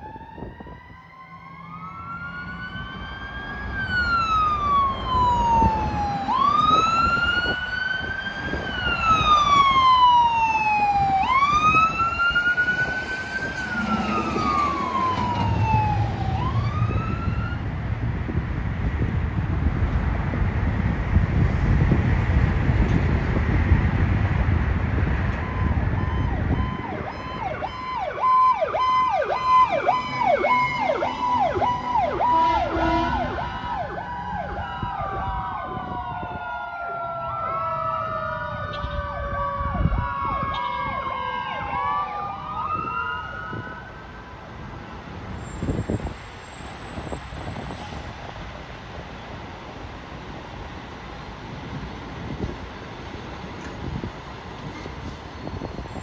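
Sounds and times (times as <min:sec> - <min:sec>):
fire truck sirens yelping and wailing: 0:00.0 - 0:19.8, 0:20.7 - 0:56.0
fire truck driving off: 0:00.0 - 0:56.0.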